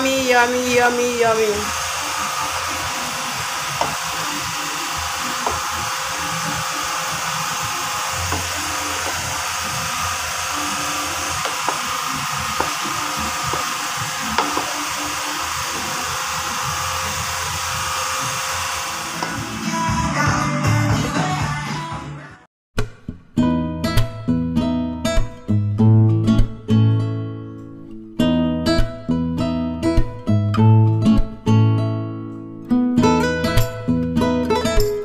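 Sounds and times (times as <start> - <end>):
steady whirring hiss: 1.4 - 19.8.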